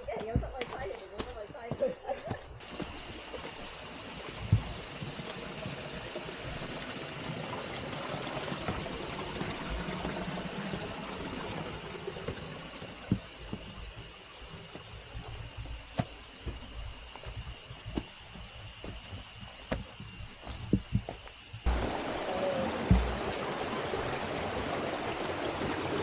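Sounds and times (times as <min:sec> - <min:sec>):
footsteps on rock: 0:00.0 - 0:03.8, 0:04.4 - 0:05.3, 0:08.0 - 0:11.4, 0:12.1 - 0:21.8, 0:22.9 - 0:23.2
water rushing: 0:02.6 - 0:26.0.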